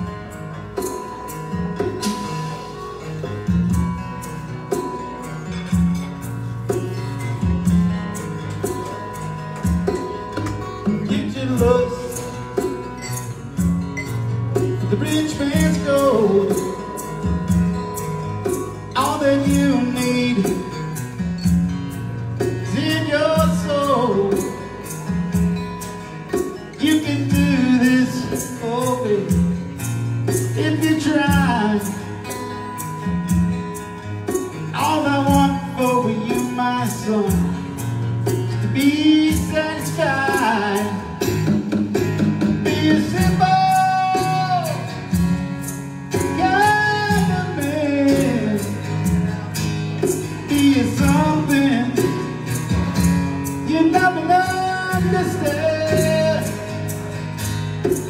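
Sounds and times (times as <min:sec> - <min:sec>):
strummed acoustic guitar: 0:00.0 - 0:58.0
person singing: 0:10.8 - 0:12.9, 0:14.6 - 0:17.0, 0:34.7 - 0:41.4, 0:42.5 - 0:45.2, 0:46.2 - 0:52.4, 0:53.5 - 0:57.1.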